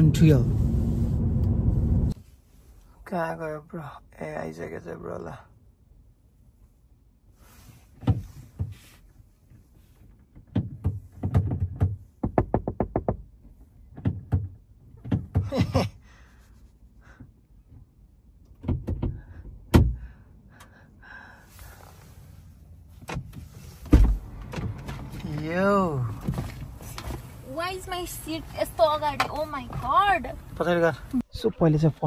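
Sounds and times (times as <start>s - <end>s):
car door opening thunk: 23.1s - 25.1s.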